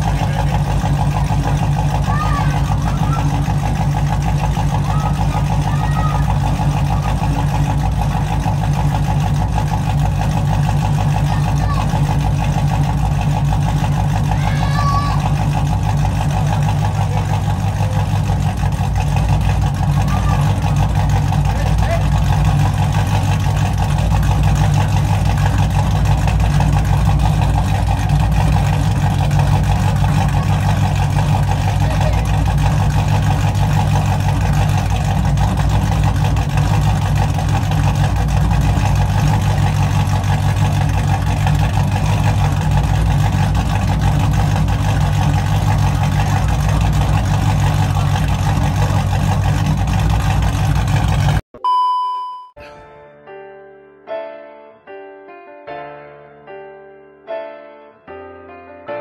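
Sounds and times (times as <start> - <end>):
car engine idling: 0.0 - 51.4.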